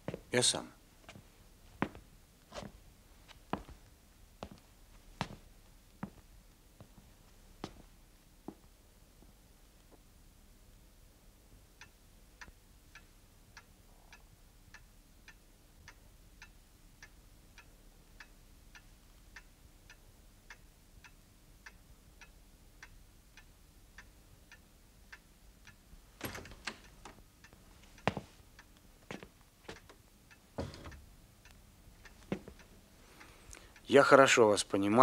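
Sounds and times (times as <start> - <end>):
clock ticking: 11.7 - 35.0.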